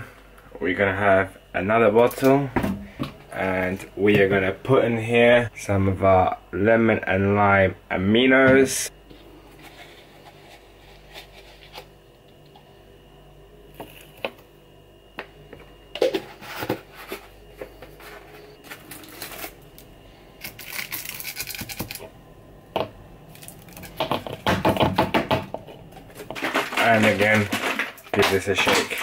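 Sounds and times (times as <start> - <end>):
plastic scoop clicks and scrapes: 26.1 - 29.0.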